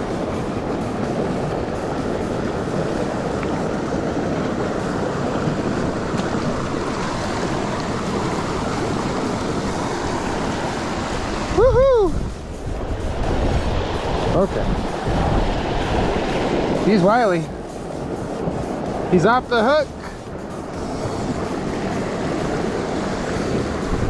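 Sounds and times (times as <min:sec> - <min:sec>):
creek water rushing over rocks: 0:00.0 - 0:24.0.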